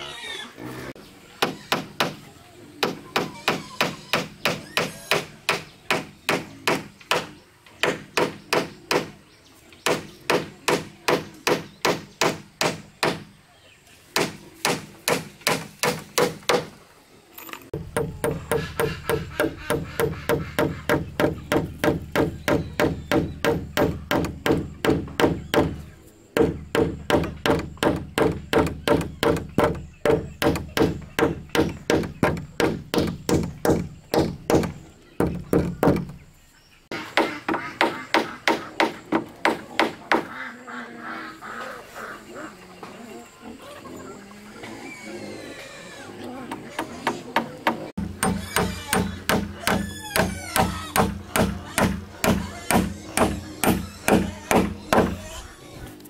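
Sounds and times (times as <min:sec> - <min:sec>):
hammer nailing wooden planks: 0:14.2 - 0:16.7, 0:17.8 - 0:25.8, 0:26.4 - 0:36.2, 0:46.8 - 0:55.2.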